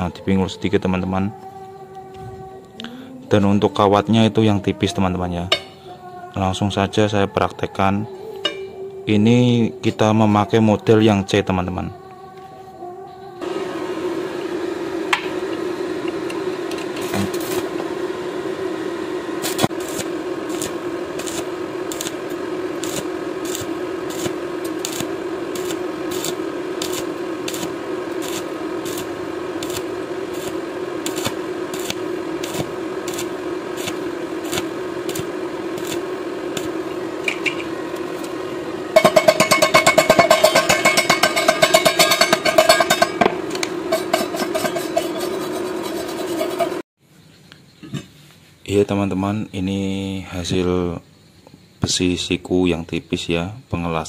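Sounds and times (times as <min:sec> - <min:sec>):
welding hum: 0:00.0 - 0:11.5, 0:13.4 - 0:46.8
welding arc crackling: 0:13.4 - 0:46.8
wire brush scrubbing metal: 0:19.4 - 0:38.4, 0:39.0 - 0:46.8.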